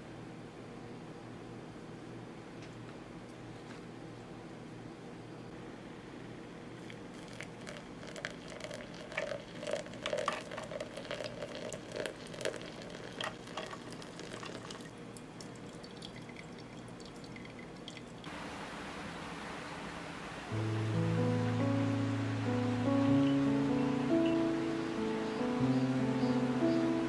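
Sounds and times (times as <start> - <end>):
coffee crackling on ice: 6.8 - 14.9
hot water trickling: 6.8 - 27.0.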